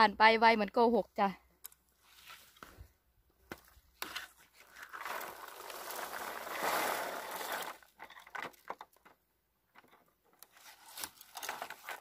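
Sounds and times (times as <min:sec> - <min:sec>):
berries pouring into bucket: 0:04.6 - 0:08.0.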